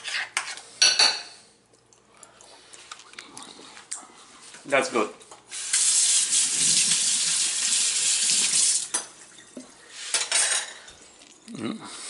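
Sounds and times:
faucet running into a metal sink: 5.6 - 9.0
utensils clinking: 10.1 - 11.4.

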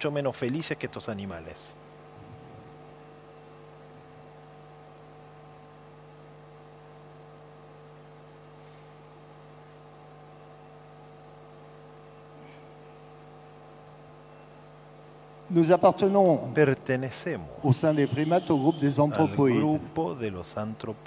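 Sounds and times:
electrical mains hum: 0.0 - 21.0
low hiss: 15.4 - 21.0.

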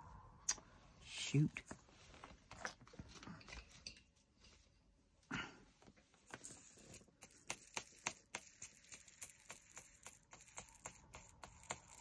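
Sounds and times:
plastic beads clicking in pot: 6.9 - 12.0.

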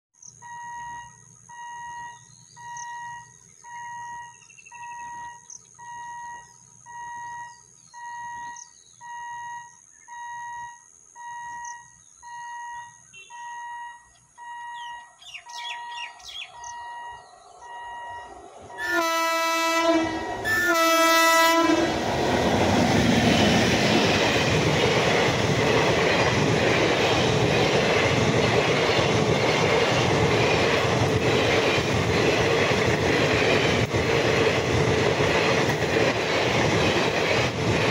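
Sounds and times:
quiet pulsing beep: 0.2 - 18.4
train rushing past: 15.6 - 37.9
locomotive horn blasts: 17.8 - 21.9.

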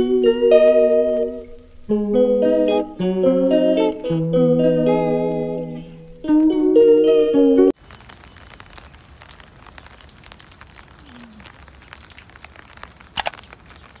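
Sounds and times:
plucked guitar music: 0.0 - 7.7
faint crackling with clicks: 7.8 - 14.0.

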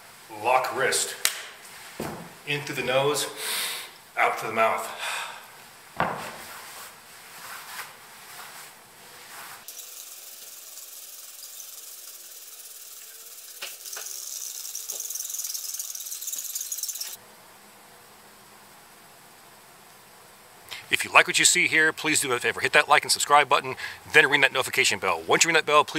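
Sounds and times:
steady high hiss: 0.0 - 25.9
spray bottle hissing: 9.7 - 17.2.

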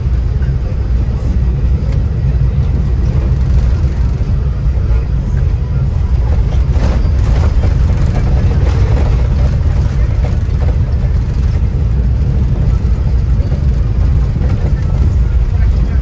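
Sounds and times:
bus engine and tyres rumbling: 0.0 - 16.0
rattling: 6.1 - 16.0.

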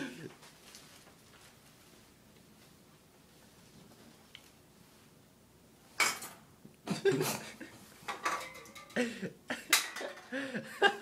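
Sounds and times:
stifled laughter: 0.0 - 0.4, 6.8 - 7.8, 8.9 - 11.0
toilet paper crinkling: 0.4 - 2.0.

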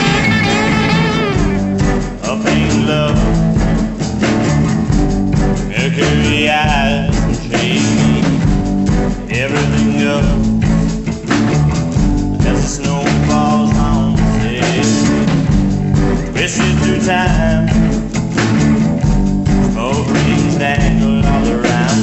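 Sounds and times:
bending guitar lines: 0.0 - 5.0
rock band music: 0.0 - 22.0.

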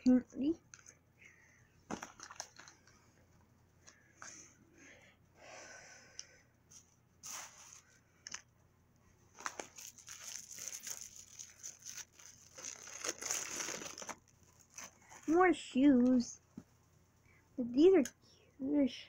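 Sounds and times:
plastic wrapping ripping: 9.4 - 15.3
plastic wrapping crinkling: 9.4 - 15.4.

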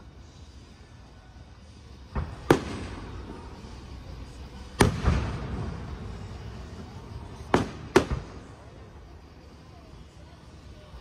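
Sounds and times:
firework shells bursting: 7.4 - 8.6.

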